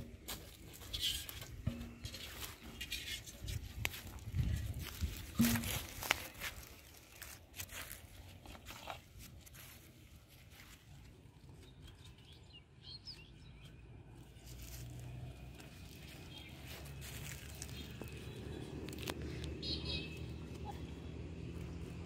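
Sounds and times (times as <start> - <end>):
bird chirps: 19.5 - 20.8.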